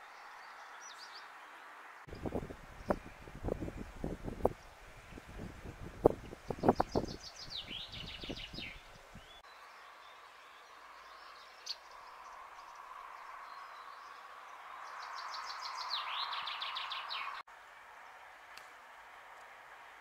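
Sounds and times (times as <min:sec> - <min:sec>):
small songbird singing: 0:00.0 - 0:18.2
steady outdoor hiss: 0:00.0 - 0:20.0.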